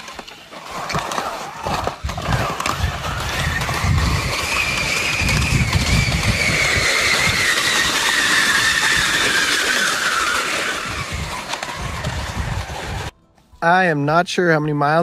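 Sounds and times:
skis sliding on snow: 0:00.0 - 0:13.1
high whistling whine: 0:00.0 - 0:13.2
wind buffeting microphone: 0:01.6 - 0:13.2.

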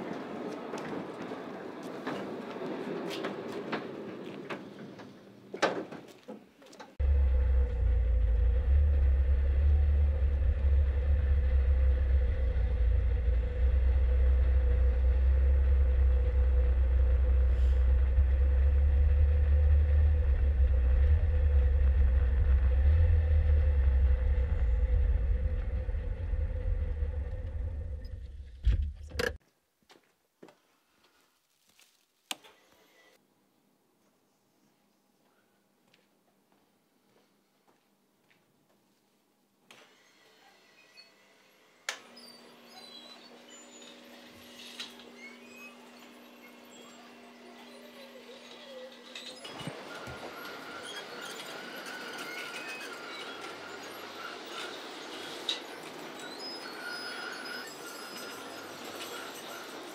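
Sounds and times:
car engine and road rumble: 0:07.0 - 0:29.4.

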